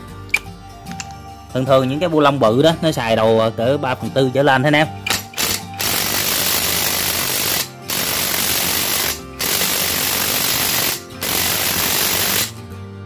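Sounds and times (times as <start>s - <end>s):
impact wrench hammering: 5.0s - 12.5s.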